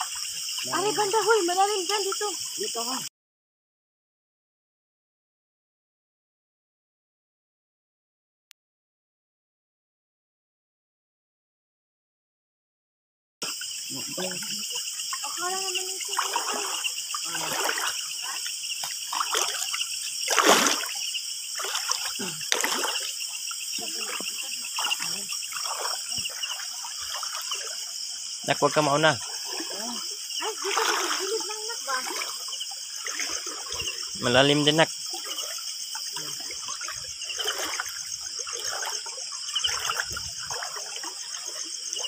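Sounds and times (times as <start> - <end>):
insects chirring: 0.0 - 3.1, 13.4 - 42.0
water splashing: 0.0 - 3.1, 13.4 - 42.0
water trickling: 0.0 - 3.1, 13.4 - 42.0.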